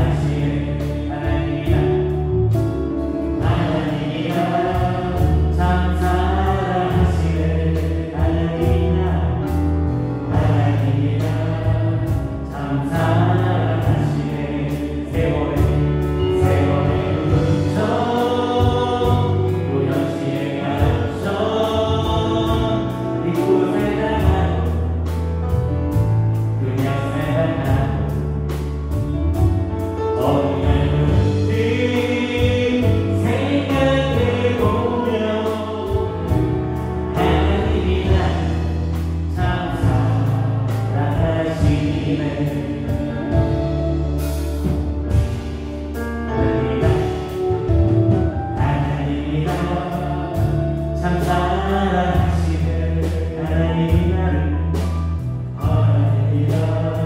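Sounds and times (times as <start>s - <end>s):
voices singing: 0.0s - 2.6s, 3.3s - 9.6s, 10.2s - 25.1s, 30.0s - 45.4s
worship band playing: 0.0s - 57.0s.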